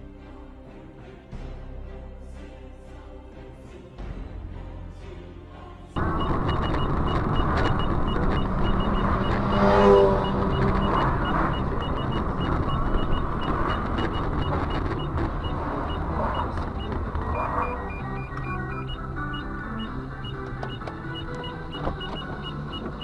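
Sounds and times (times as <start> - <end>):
high repeating beep: 6.0 - 23.0
vehicle road and engine noise: 6.0 - 23.0
loud horn blare: 8.4 - 14.1, 17.3 - 18.0.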